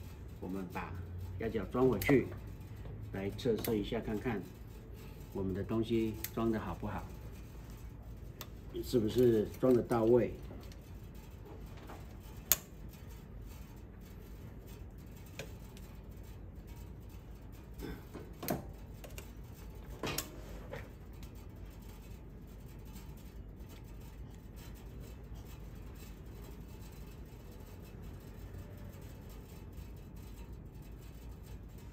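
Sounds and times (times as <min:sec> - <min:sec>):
small metal clicks and knocks: 0:01.7 - 0:04.4, 0:05.8 - 0:13.7, 0:14.6 - 0:21.4.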